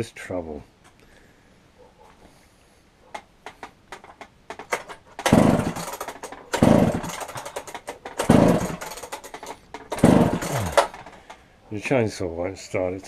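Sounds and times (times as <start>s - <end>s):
light clicks and knocks: 3.1s - 5.3s
chainsaw pull-cord cranking: 3.1s - 11.4s.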